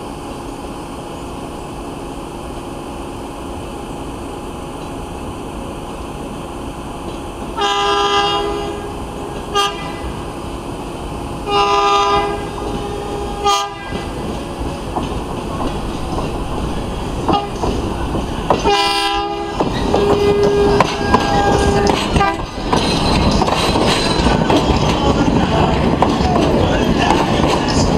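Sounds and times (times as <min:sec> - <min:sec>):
train wheels rumbling on rails: 0:00.0 - 0:27.9
train air horn blasts: 0:07.6 - 0:10.2, 0:11.4 - 0:14.1, 0:17.3 - 0:17.6, 0:18.6 - 0:22.5.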